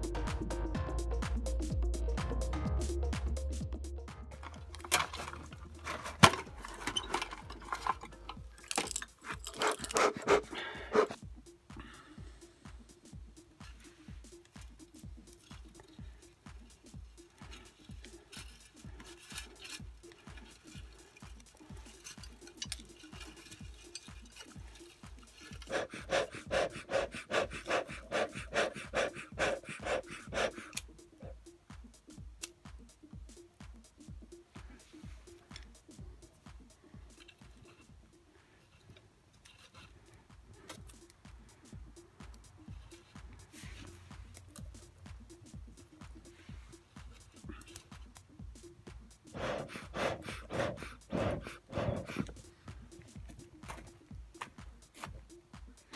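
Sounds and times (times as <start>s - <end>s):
background music with steady beat: 0.0s - 55.9s
smoker bellows puffing: 4.4s - 31.4s, 40.0s - 54.0s
dry pine needles rustling: 13.9s - 26.7s.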